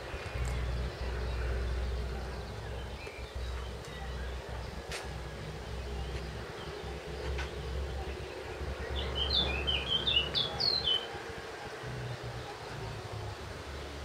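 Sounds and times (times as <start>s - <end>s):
low background rumble: 0.0s - 10.6s
songbird chirping: 0.0s - 14.0s.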